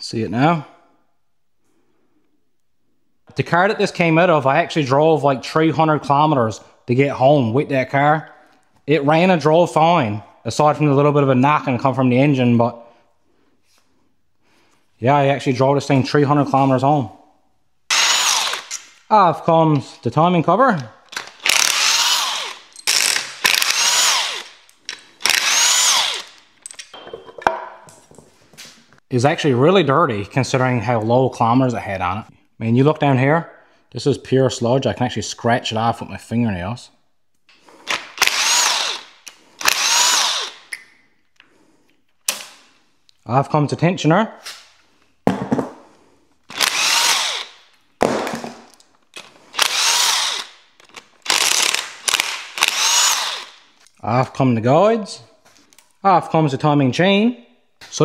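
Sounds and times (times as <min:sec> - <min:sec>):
cordless drill whining: 0:17.9 - 0:19.0, 0:21.1 - 0:26.4, 0:37.8 - 0:40.8, 0:46.5 - 0:47.6, 0:49.2 - 0:53.6.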